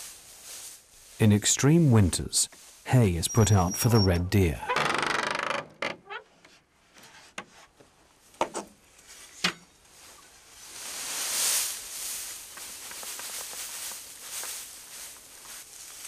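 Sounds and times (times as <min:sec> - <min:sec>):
hay rustling onto ground: 0:00.0 - 0:03.5, 0:08.9 - 0:16.0
old wood creaking and knocking: 0:04.6 - 0:06.6.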